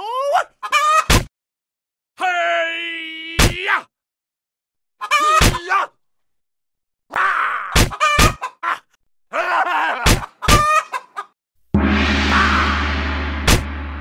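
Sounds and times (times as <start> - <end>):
cartoon chicken squawking: 0.3 - 1.3, 5.0 - 5.9, 7.1 - 11.3
sharp whacking hits: 11.8 - 14.0.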